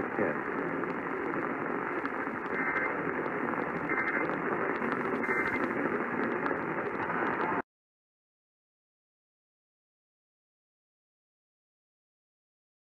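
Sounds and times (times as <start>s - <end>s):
radio static hiss: 0.0s - 7.6s.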